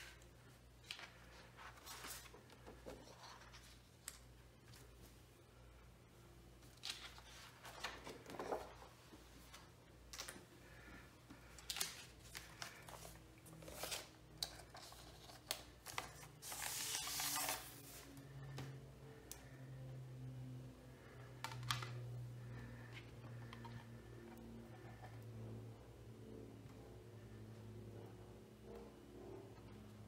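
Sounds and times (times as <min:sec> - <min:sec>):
plastic sleeve rustling and crinkling: 0:11.6 - 0:18.1.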